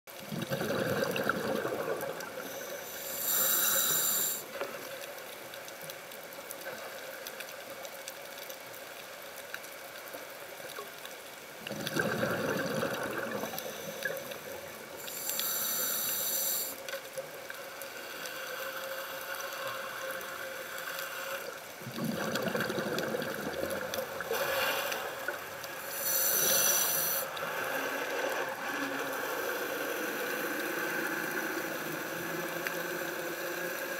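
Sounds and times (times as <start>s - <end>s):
exhaled bubbles rushing: 0.3s - 2.4s, 11.7s - 13.7s, 21.8s - 24.3s
regulator hiss of inhaled air: 2.4s - 4.5s, 13.6s - 16.8s, 25.8s - 27.4s.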